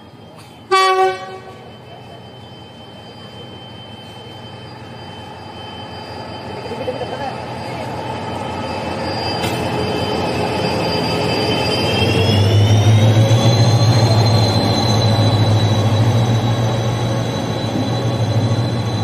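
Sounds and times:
train rolling past: 0.0s - 19.0s
high whine rising in pitch: 1.6s - 19.0s.

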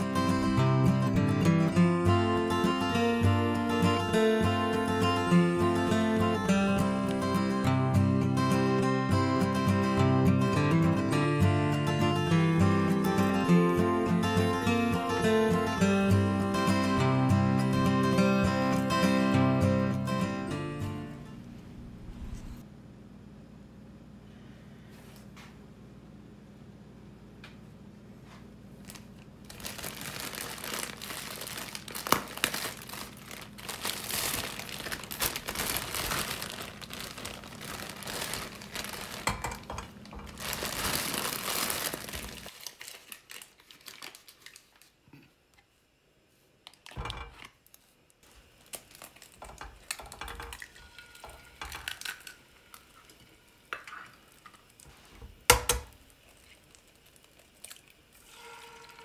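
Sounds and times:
crinkling and rustling: 28.2s - 45.0s, 46.6s - 53.2s
egg cracking: 29.5s - 44.8s, 48.6s - 58.9s.

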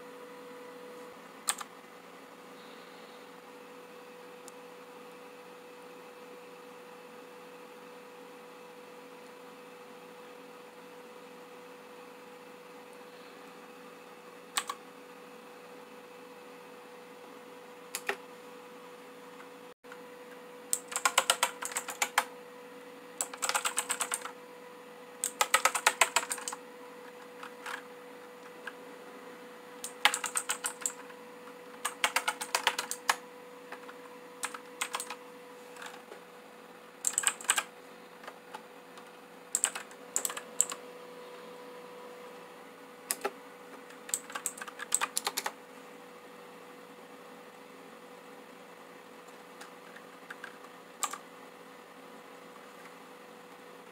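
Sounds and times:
clicky mechanical keyboard typing: 1.5s - 1.7s, 14.6s - 14.8s, 17.9s - 18.2s, 20.7s - 22.3s, 23.2s - 24.4s, 25.2s - 27.8s, 29.8s - 31.1s, 31.8s - 35.2s, 37.0s - 37.7s, 39.5s - 40.8s, 43.1s - 45.6s, 49.2s - 51.2s.

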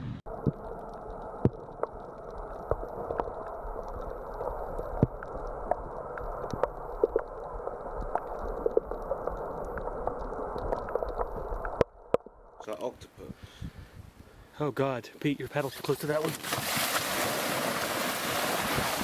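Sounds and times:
sharp clicks and crackles: 0.3s - 12.3s.

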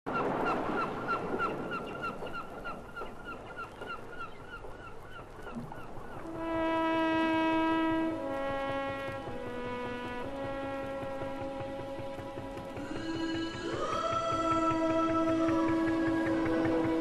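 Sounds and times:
gulls calling: 0.1s - 17.0s
held horn-like music note: 6.3s - 13.9s.

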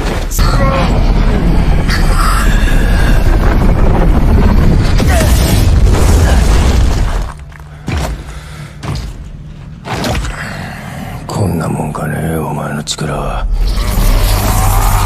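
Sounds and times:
explosive blast rumble: 0.4s - 7.4s.

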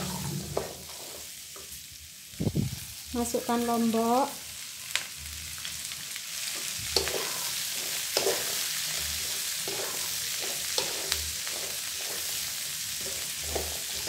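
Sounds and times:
wooden spatula scraping a wok: 0.0s - 1.8s, 6.5s - 14.0s
shallots sizzling in hot oil: 0.0s - 14.0s.

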